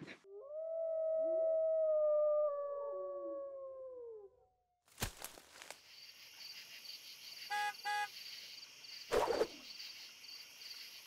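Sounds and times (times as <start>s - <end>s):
insects chirping: 4.9s - 11.0s
car horn beeps: 7.5s - 8.1s.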